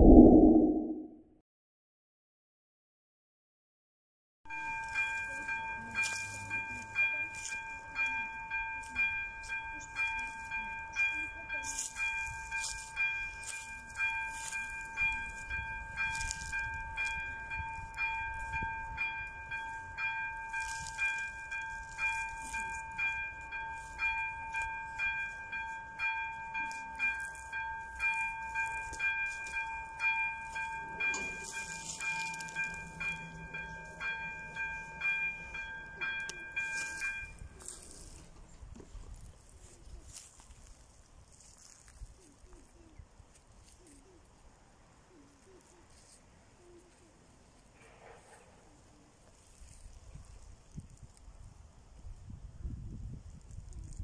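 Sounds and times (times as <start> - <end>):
level crossing warning bell: 4.5 - 38.3.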